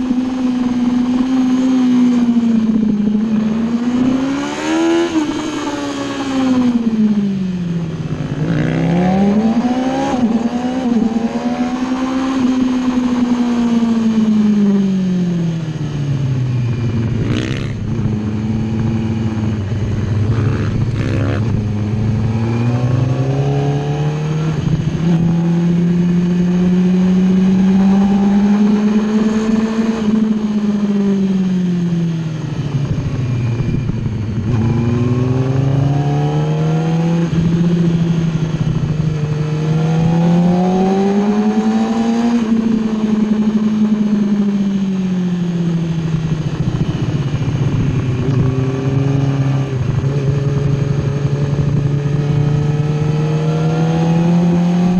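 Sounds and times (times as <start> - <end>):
motorbike engine revving: 0.0 - 15.5, 16.5 - 44.6, 45.5 - 54.9
wind rush on microphone: 15.6 - 23.8, 24.4 - 36.2, 37.1 - 54.9.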